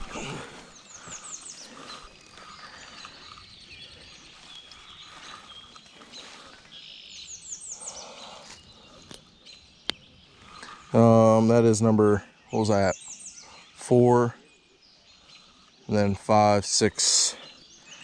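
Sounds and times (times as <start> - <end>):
faint bird calls: 0.0 - 11.6
songbirds singing: 0.0 - 18.0.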